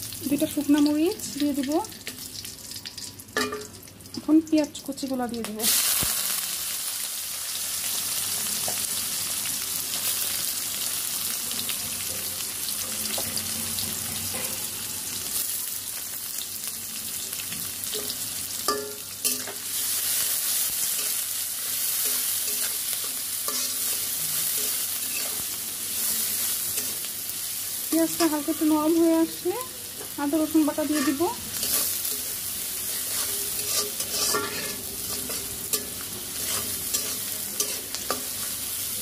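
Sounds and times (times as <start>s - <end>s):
onions sizzling in hot oil: 0.0s - 39.0s
spatula scraping and knocking pan: 33.0s - 38.5s.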